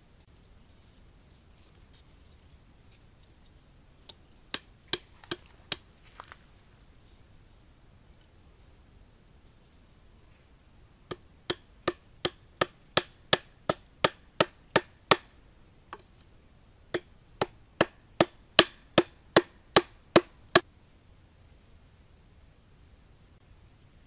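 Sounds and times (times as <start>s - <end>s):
bamboo sticks knocking into coconut husk: 4.5s - 6.4s.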